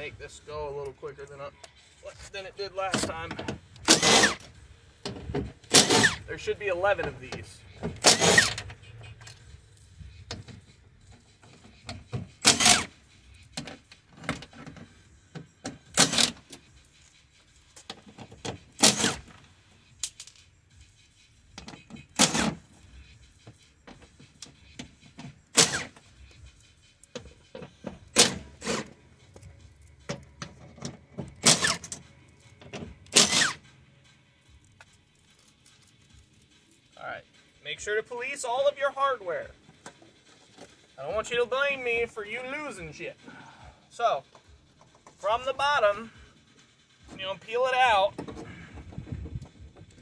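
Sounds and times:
cordless power tool buzzing: 3.8s - 4.5s.

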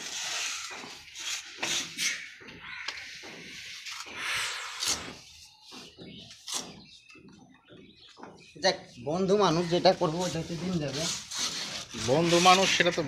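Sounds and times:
plastering tool scraping mortar: 0.0s - 2.3s, 9.4s - 13.0s.

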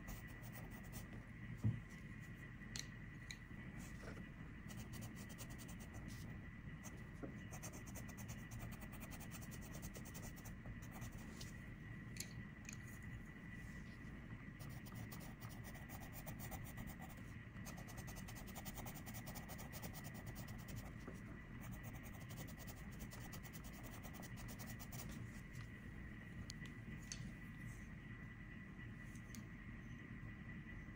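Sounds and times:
steady low hum: 0.0s - 30.9s
pencil scratching on paper: 4.7s - 11.2s, 14.6s - 21.0s, 21.6s - 25.2s.

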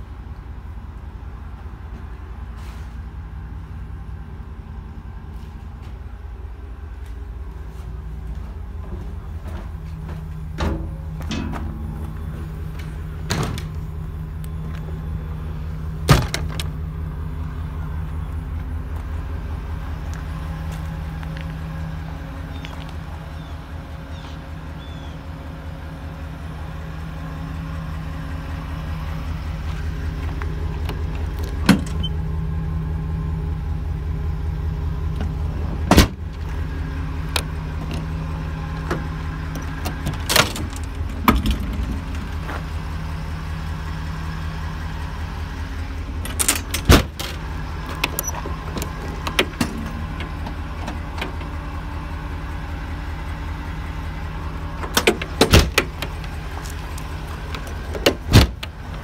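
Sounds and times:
truck engine idling: 0.0s - 59.0s
metal door and latch clunks: 10.5s - 13.8s, 16.0s - 16.8s, 30.8s - 32.2s, 35.1s - 36.4s, 38.8s - 42.3s, 46.2s - 51.6s, 54.8s - 59.0s.

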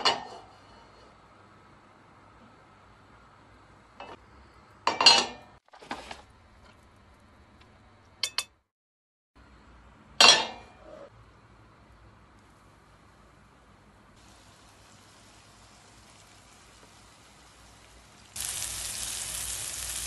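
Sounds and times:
glass dishes clinking and knocking: 4.9s - 5.5s.

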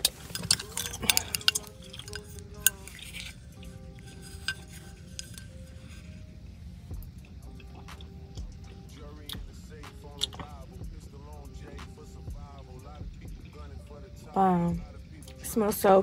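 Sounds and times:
candle container clinks and taps: 0.0s - 6.2s
soft background music: 0.0s - 16.0s.

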